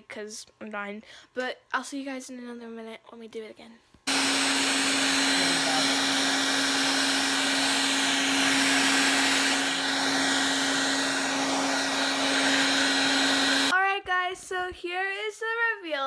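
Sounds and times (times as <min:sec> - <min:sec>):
hair dryer running: 0:04.1 - 0:13.7.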